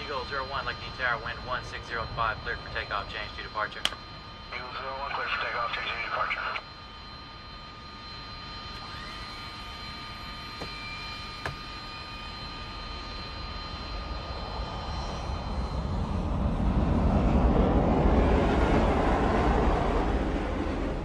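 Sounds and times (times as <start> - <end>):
jet turbine whine: 0.0 - 21.0
jet roar taking off: 13.7 - 21.0.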